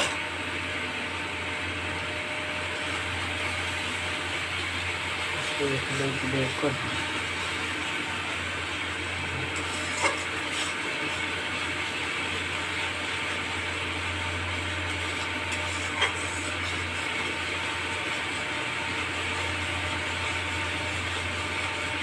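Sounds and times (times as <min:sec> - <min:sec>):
steady low hum: 0:00.0 - 0:22.0
spice paste sizzling: 0:06.8 - 0:22.0.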